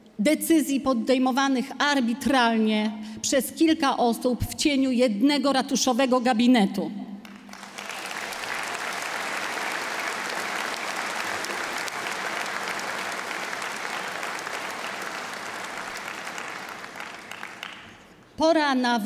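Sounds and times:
large audience applauding: 7.2 - 18.2.

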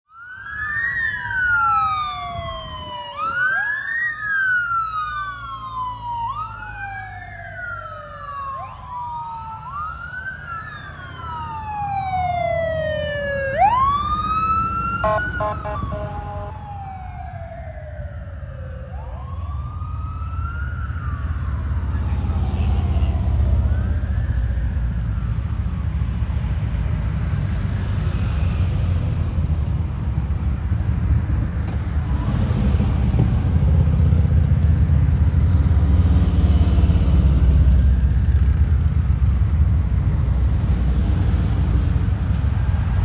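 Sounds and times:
police sirens wailing: 0.1 - 43.0
vehicles rumbling: 0.1 - 43.0
rapid pulsing siren tones: 0.2 - 26.6.

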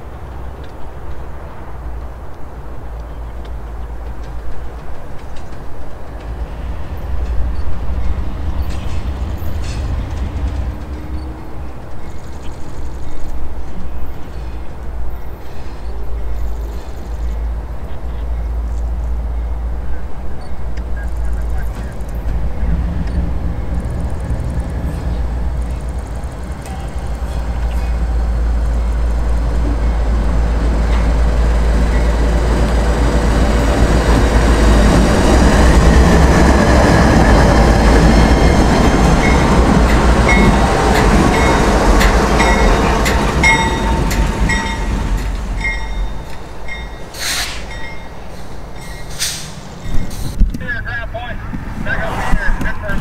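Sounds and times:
locomotive engine rumble: 0.0 - 53.0
train wheels on rails: 0.0 - 53.0
crossing bell dinging: 25.6 - 35.3, 38.0 - 49.1.

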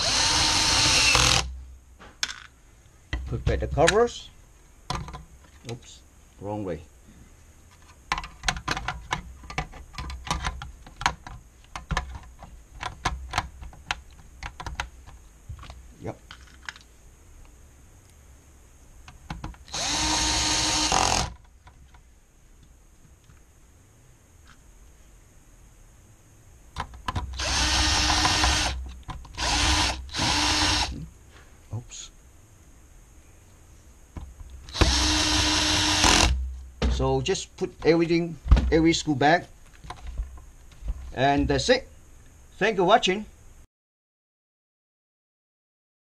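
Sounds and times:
drill clicks: 0.0 - 1.5, 19.6 - 21.4, 27.2 - 31.0, 34.7 - 36.4
drill motor driving screws: 0.0 - 1.5, 19.6 - 21.4, 27.3 - 31.0, 34.7 - 36.4
dull thumps: 36.0 - 37.2, 37.8 - 38.9.

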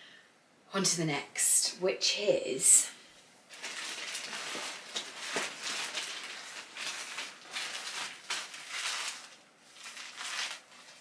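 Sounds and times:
plastic packaging rustling: 3.5 - 11.0.

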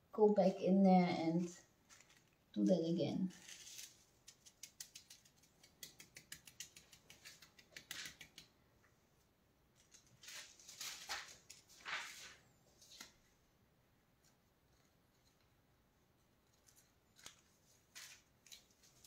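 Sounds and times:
metal leaf crackling: 1.4 - 5.5
hand rubbing metal leaf on wall: 3.3 - 8.5.

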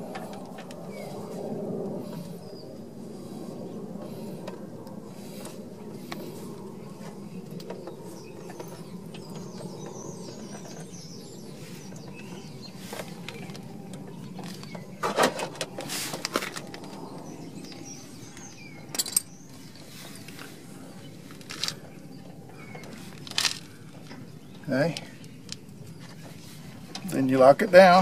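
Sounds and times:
steady low hum: 0.0 - 28.0
metal tools clinking: 18.9 - 19.3.

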